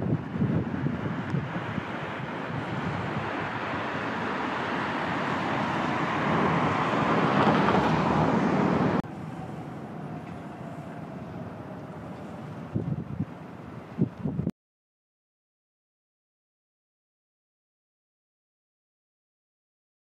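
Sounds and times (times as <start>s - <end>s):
vehicle passing close: 0.0s - 14.1s
steady traffic hum: 0.0s - 14.5s.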